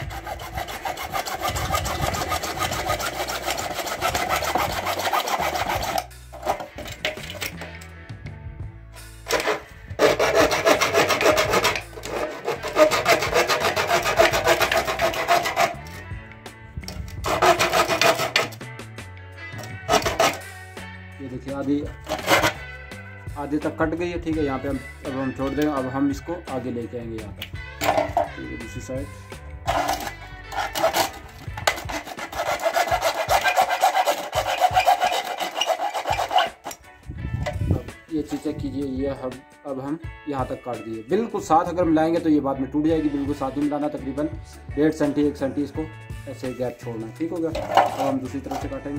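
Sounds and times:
hacksaw sawing plastic: 0:00.0 - 0:07.8, 0:09.2 - 0:16.1, 0:16.8 - 0:18.7, 0:19.6 - 0:20.5, 0:21.9 - 0:22.7, 0:27.8 - 0:28.4, 0:29.6 - 0:38.6, 0:47.3 - 0:48.9.

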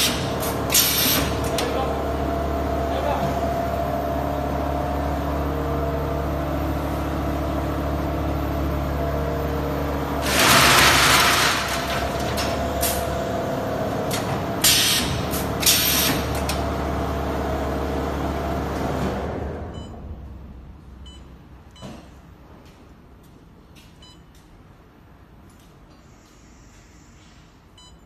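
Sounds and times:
machine humming: 0:00.3 - 0:19.6.

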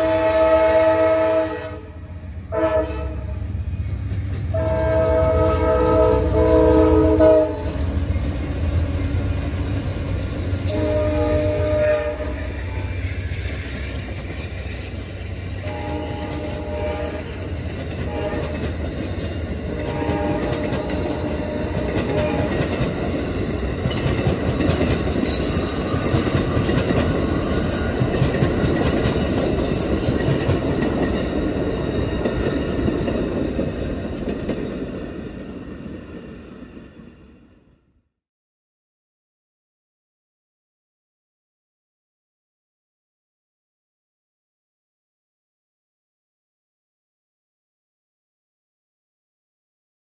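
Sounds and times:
locomotive horn blasts: 0:00.0 - 0:03.3, 0:04.5 - 0:07.8, 0:10.6 - 0:12.9, 0:15.6 - 0:18.6, 0:19.7 - 0:22.6
train wheels clattering on rails: 0:12.4 - 0:35.9.

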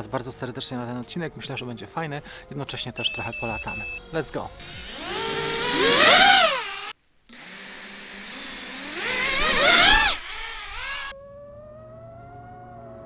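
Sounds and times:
drone motors and propellers whining: 0:04.6 - 0:11.2.

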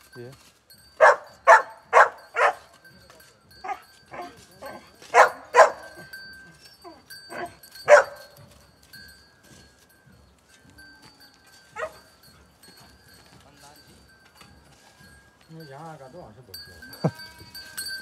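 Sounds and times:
dog barking: 0:01.0 - 0:02.7, 0:03.6 - 0:06.1, 0:07.3 - 0:08.4, 0:11.8 - 0:12.0.

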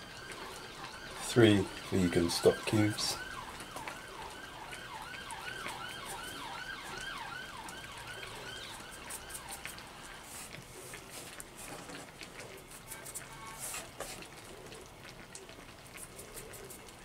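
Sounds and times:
distant electronic siren: 0:00.0 - 0:10.4, 0:12.6 - 0:13.9.

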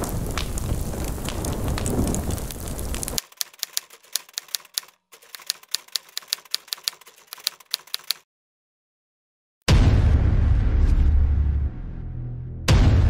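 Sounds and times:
typewriter keys clicking: 0:03.2 - 0:08.2.

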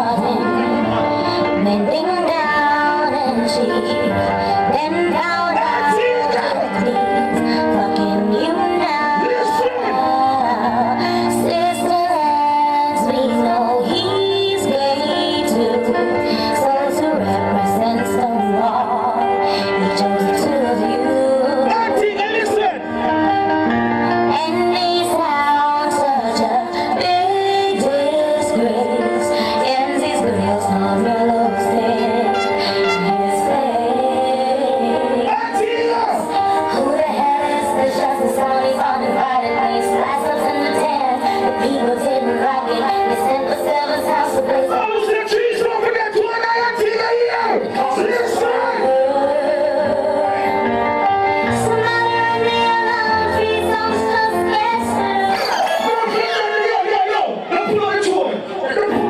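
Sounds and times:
music with singing over sound system: 0:00.0 - 0:59.0
song with vocals and beat: 0:00.0 - 0:59.0.

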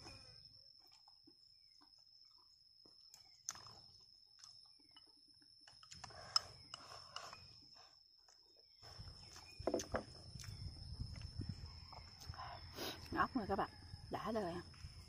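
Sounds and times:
chewing: 0:05.6 - 0:07.5.

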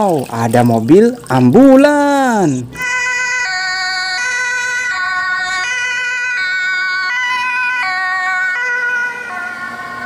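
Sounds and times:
two-tone ambulance siren: 0:02.8 - 0:10.0.

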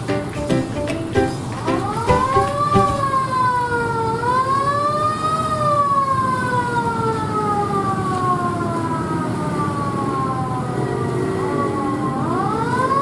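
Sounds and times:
fire truck siren wailing: 0:01.8 - 0:13.0.

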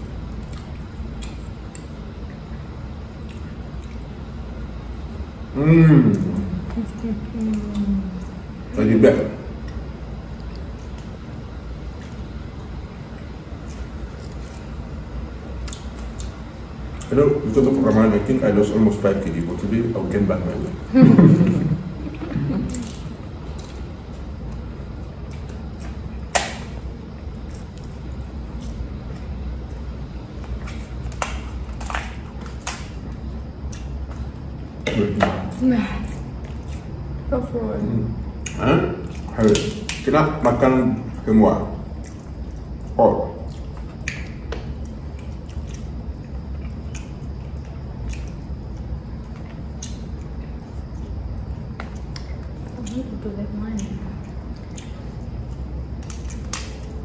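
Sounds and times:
wet squishing: 0:00.0 - 0:05.3, 0:06.1 - 0:37.2, 0:38.2 - 0:57.0
steady low hum: 0:00.0 - 0:57.0
sharp crack of crab shell: 0:26.3 - 0:26.8, 0:56.0 - 0:56.9.

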